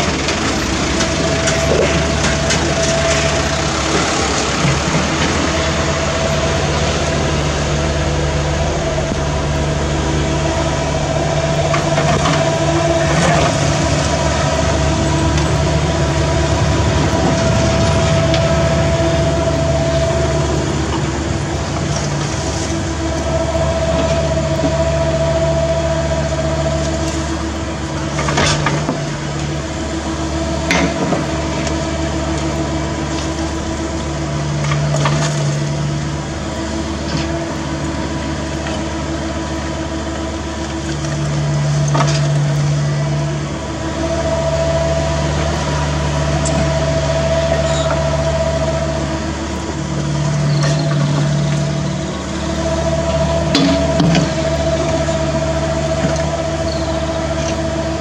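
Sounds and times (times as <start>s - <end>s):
excavator diesel engine running: 0.0s - 58.0s
hydraulic whine: 0.0s - 58.0s.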